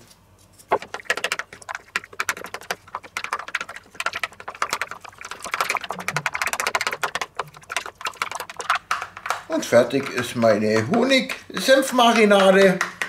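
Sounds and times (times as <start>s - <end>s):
spoon scraping plastic container: 0.7s - 10.2s.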